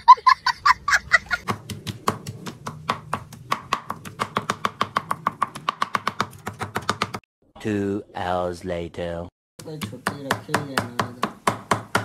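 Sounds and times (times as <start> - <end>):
knife chopping on cutting board: 1.5 - 7.2, 9.8 - 12.0.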